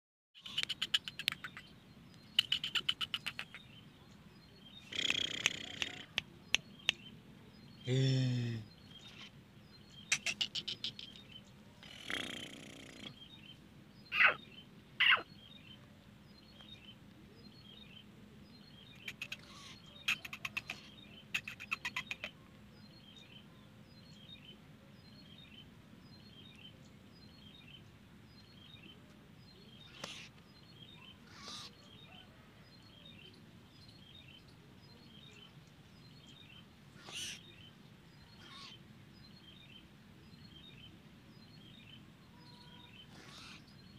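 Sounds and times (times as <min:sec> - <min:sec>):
francolin calling: 0:00.4 - 0:03.8, 0:14.1 - 0:15.6, 0:18.9 - 0:22.4, 0:29.7 - 0:32.4, 0:37.0 - 0:38.8, 0:42.3 - 0:43.9
faint high chirps: 0:41.5 - 0:43.9.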